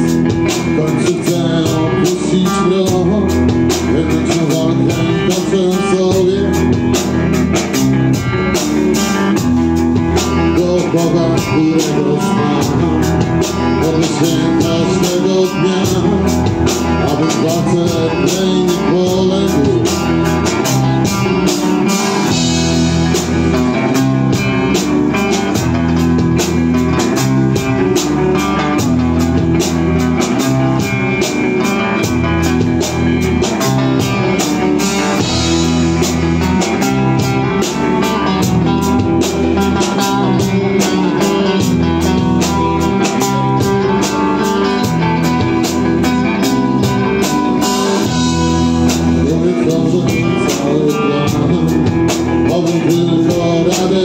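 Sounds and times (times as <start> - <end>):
bass guitar: 0.0 - 54.0
drum kit beat: 0.0 - 54.0
electric guitars: 0.0 - 54.0
man singing into a microphone: 0.2 - 6.9, 10.2 - 21.4, 49.1 - 54.0.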